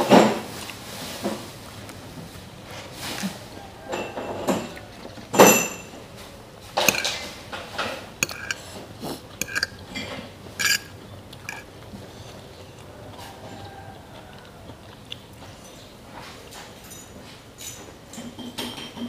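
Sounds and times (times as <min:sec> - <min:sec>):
fork clinking on ceramic bowl: 0:06.8 - 0:07.3, 0:08.2 - 0:08.7, 0:09.3 - 0:11.7.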